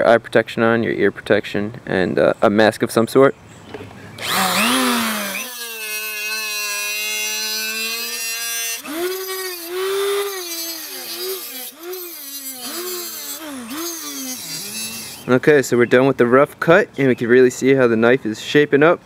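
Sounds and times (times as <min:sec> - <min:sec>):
angle grinder cutting steel: 0:04.2 - 0:15.4.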